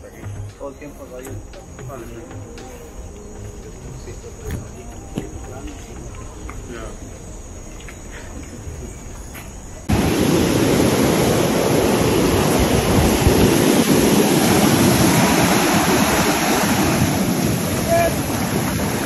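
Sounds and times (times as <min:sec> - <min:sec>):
insects in rainforest: 0:00.0 - 0:19.0
wind noise on microphone: 0:08.6 - 0:19.0
surf washing up beach: 0:09.8 - 0:19.0.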